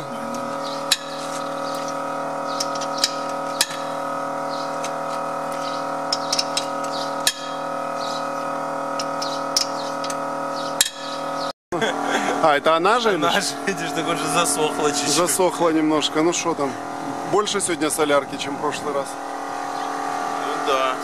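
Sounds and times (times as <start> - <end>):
steady hum: 0.0 - 21.0
wrench clicking on lug nuts: 2.5 - 3.9, 4.8 - 7.7, 8.9 - 11.2.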